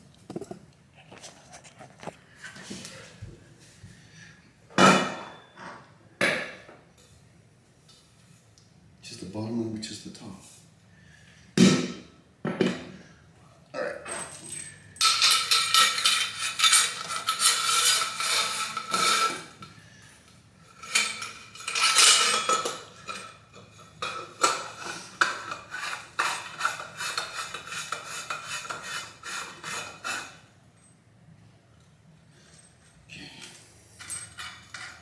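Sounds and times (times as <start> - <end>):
metal tubes scraping and clinking: 14.0 - 30.9, 32.3 - 35.0.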